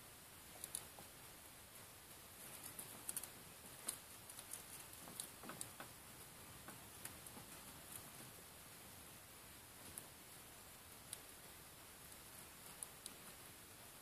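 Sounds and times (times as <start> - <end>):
faint light clicks and ticks: 0.6 - 1.1, 2.4 - 6.0, 11.0 - 11.3, 12.1 - 13.4.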